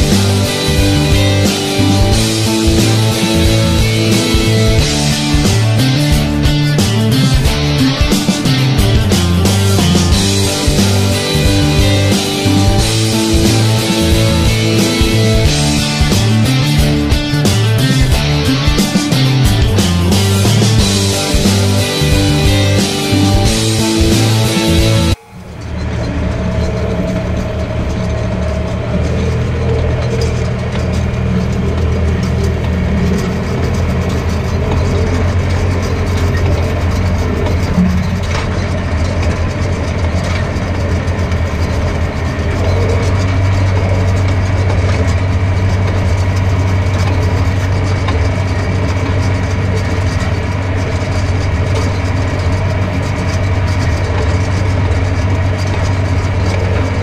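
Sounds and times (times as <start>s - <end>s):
tractor engine running: 0.0s - 57.0s.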